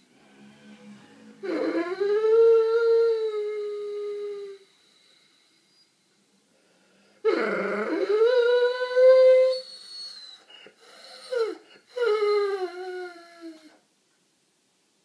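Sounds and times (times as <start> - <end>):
dog whining: 1.4 - 4.7, 7.2 - 13.8.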